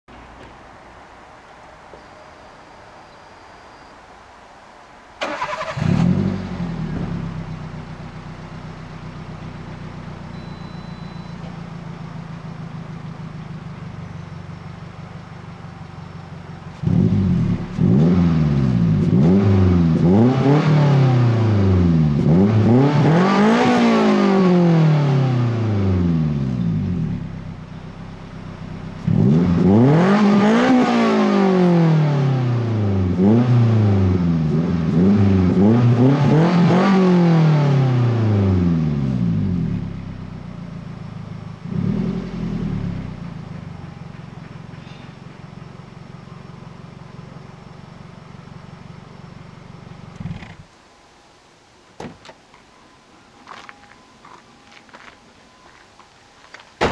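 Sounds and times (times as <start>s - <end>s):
car engine revving through exhaust: 5.3s - 10.4s, 16.5s - 50.7s.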